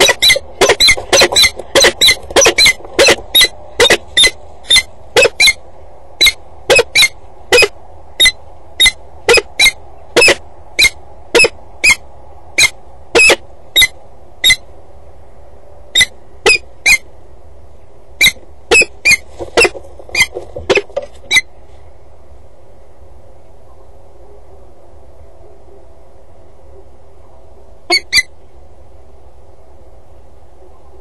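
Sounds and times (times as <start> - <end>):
falcon calling: 0.0 - 5.6, 6.2 - 12.0, 12.6 - 14.6, 27.9 - 28.3.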